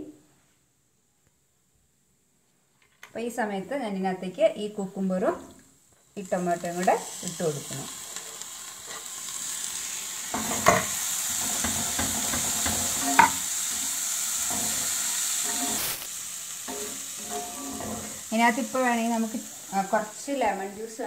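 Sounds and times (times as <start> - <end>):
spatula stirring and scraping pan: 7.9 - 9.6, 10.3 - 18.8
spatula knocking against pan: 11.5 - 13.4.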